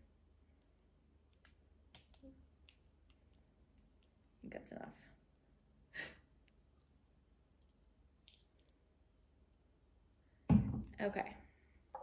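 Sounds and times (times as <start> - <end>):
plastic bottle thump on countertop: 10.5 - 10.9.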